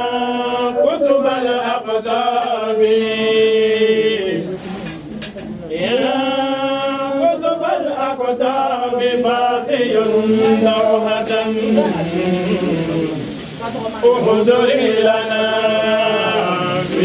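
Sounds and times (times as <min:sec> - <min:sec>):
person chanting: 0:05.7 - 0:17.0.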